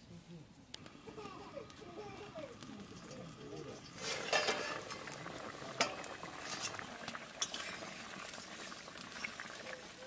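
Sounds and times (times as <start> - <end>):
curry bubbling: 0.8 - 10.0
metal spoon stirring: 2.9 - 5.0
metal lid clinking: 3.0 - 5.1.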